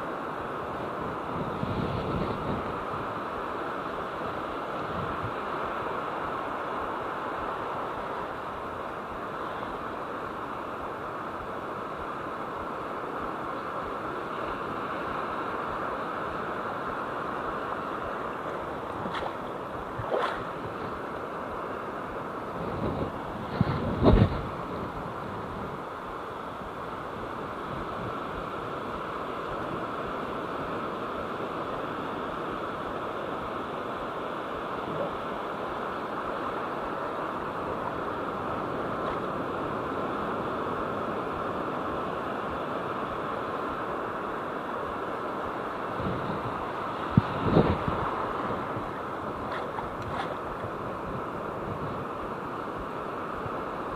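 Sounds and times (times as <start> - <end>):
ocean surf washing: 0.0 - 53.9
wind on microphone: 0.0 - 53.9.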